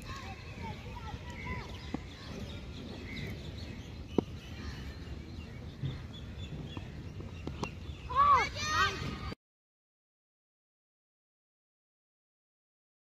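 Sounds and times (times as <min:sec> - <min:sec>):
small birds chirping: 0:00.0 - 0:09.3
open-air background noise: 0:00.0 - 0:09.4.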